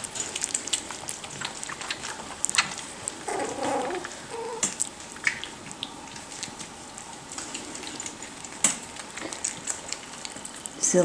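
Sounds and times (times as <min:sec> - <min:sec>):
puppies scuffling: 0:00.0 - 0:11.0
puppy call: 0:03.2 - 0:04.8.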